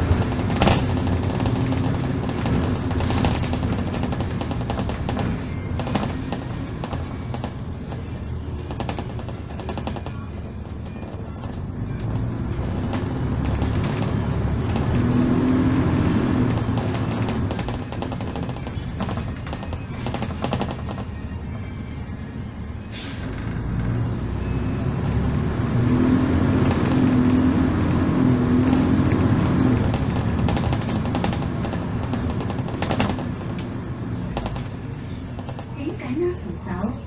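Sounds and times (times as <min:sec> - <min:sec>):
bus body rattling: 0:00.0 - 0:37.0
bus engine rumbling: 0:00.0 - 0:37.0
sharp air hiss: 0:22.9 - 0:23.3.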